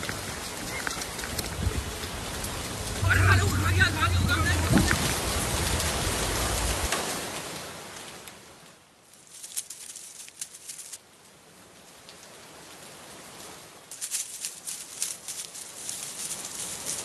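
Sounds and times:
rain hissing: 0.0 - 17.0
light sharp ticks: 13.9 - 17.0.

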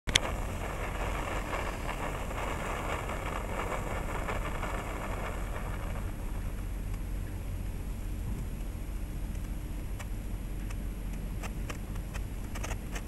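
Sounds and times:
steady low rumble: 0.0 - 13.0
sparklers crackling: 0.1 - 6.8.

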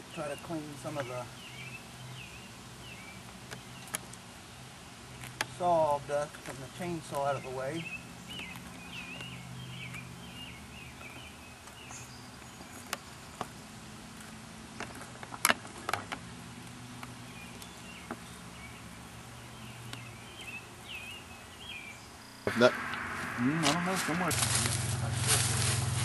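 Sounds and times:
honeybees humming: 17.3 - 26.0.

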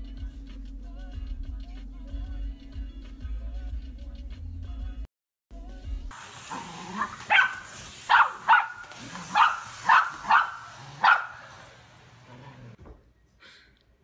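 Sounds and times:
vacuum cleaner hissing: 6.1 - 12.8
dogs barking sharply: 6.5 - 12.8.

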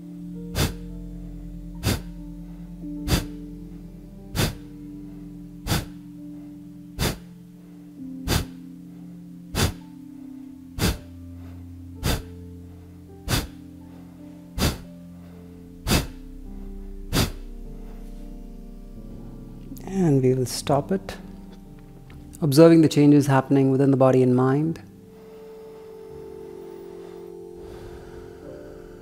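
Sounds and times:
soft background music: 0.0 - 29.0
forceful nasal exhalations: 0.5 - 0.9, 1.8 - 7.3, 8.2 - 9.8, 10.8 - 12.4, 13.2 - 18.3, 25.1 - 29.0.

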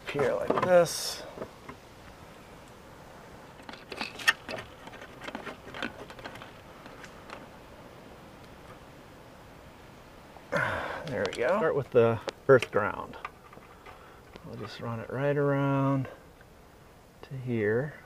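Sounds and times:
light clicks and scrapes: 3.6 - 7.5, 12.2 - 14.8.

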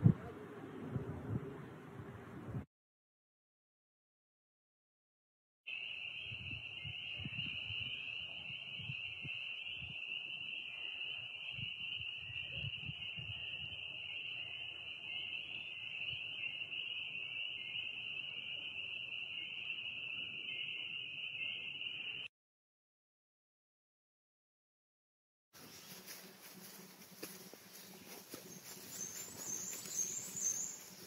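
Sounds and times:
low rumbling: 0.0 - 2.6
frogs peeping in chorus: 5.7 - 22.3, 25.6 - 31.0.

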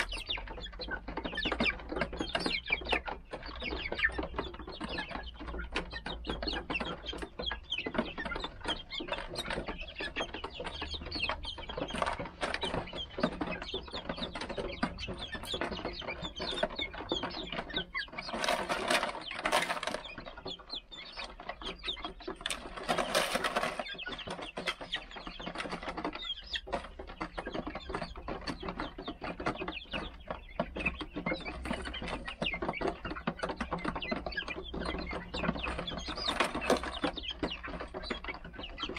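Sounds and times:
chickens clucking: 0.0 - 38.9
pecking and scratching at gravel: 8.0 - 38.9.

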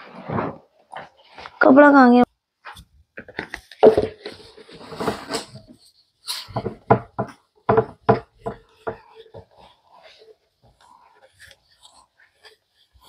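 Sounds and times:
objects handled rustling clatter: 2.6 - 13.0
knocks on wood: 6.6 - 9.0.

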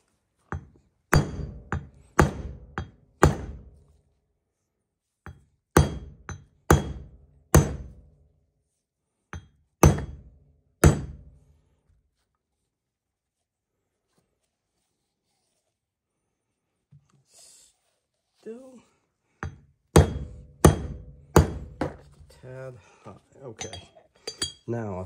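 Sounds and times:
hammer striking metal: 0.5 - 3.7, 5.3 - 8.0, 9.4 - 11.3, 19.4 - 22.1, 23.6 - 24.6.

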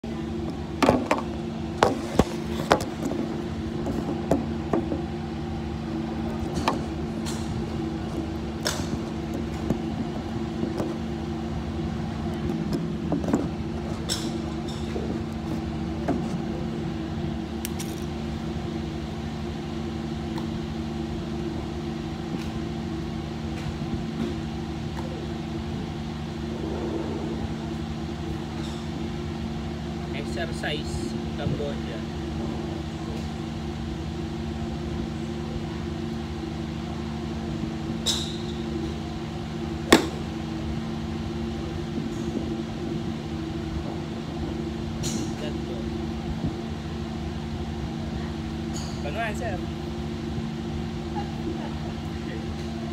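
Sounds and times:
low mechanical hum: 0.0 - 52.9
golf balls being struck: 0.3 - 5.2, 6.1 - 11.3, 39.8 - 40.7.

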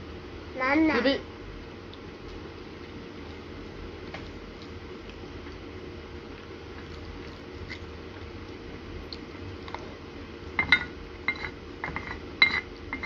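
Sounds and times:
steady low hum: 0.0 - 13.0
spoon clinking against bowl: 10.6 - 13.0.

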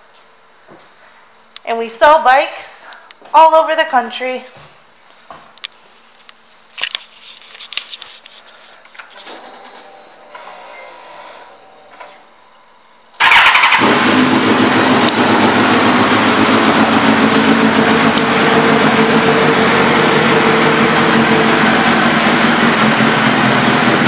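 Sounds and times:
motorcycle engine starting and idling: 13.2 - 24.0.

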